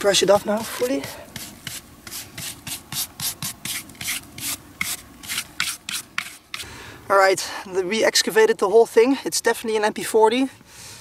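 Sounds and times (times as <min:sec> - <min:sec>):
brush sweeping sand: 0:00.0 - 0:06.7.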